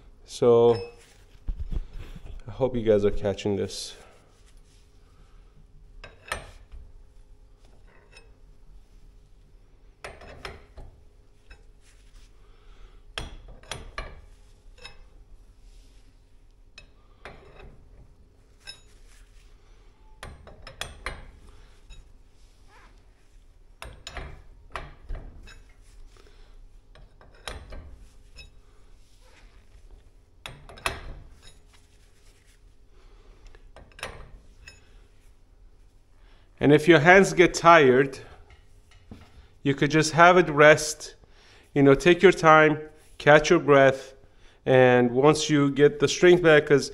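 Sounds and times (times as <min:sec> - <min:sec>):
steel bars clinking and scraping: 0:07.8 - 0:08.4, 0:13.5 - 0:15.2, 0:18.5 - 0:19.3, 0:30.7 - 0:31.8.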